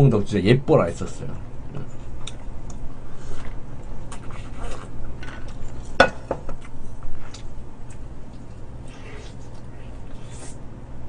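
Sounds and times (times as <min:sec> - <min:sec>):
low steady hum: 0:00.0 - 0:11.0
chewing: 0:06.6 - 0:10.6.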